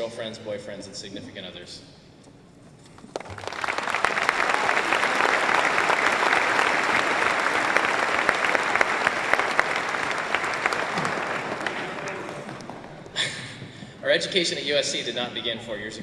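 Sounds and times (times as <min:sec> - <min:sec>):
large audience applauding: 0:03.0 - 0:13.5.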